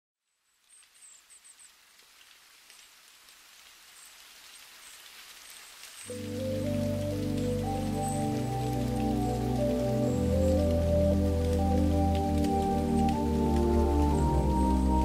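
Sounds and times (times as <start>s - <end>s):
steady rain: 0.3s - 15.0s
soft sustained music chords: 6.1s - 15.0s.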